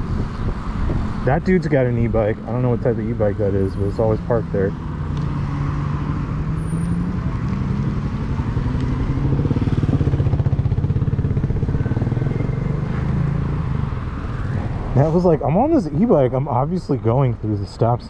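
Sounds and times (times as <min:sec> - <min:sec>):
wind noise on microphone: 0:00.0 - 0:02.8.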